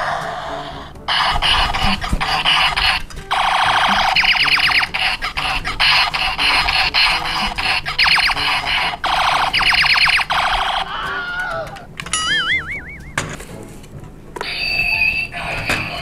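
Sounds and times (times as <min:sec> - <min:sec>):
toy rapid falling chirps: 0:00.0 - 0:13.2
electronic sweep: 0:01.1 - 0:10.9
warbling electronic tone: 0:01.1 - 0:10.9, 0:12.2 - 0:13.2.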